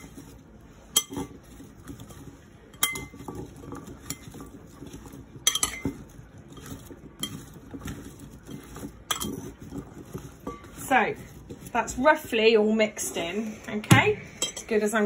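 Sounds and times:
vegetable pieces shuffling in bowl: 0.0 - 13.7
spoon clinking against glass: 2.8 - 3.3, 5.5 - 6.0.

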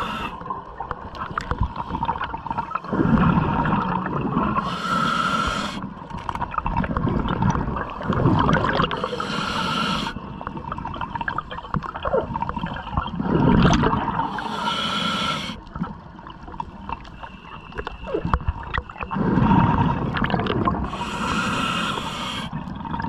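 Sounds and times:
hissing breaths through regulator: 0.0 - 0.4, 4.5 - 6.0, 8.8 - 10.3, 14.2 - 15.7, 20.8 - 22.6
gurgling exhaled bubbles: 0.0 - 14.5, 17.8 - 23.0.

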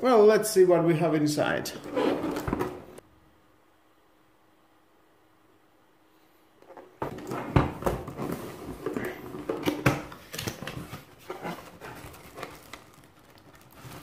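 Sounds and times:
cardboard box being opened: 10.7 - 14.0.

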